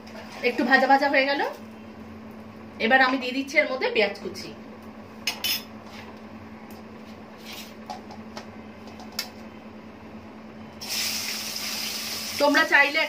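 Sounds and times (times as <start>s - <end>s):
steady low hum: 0.0s - 10.9s
oil with spices sizzling in a wok: 10.8s - 13.0s.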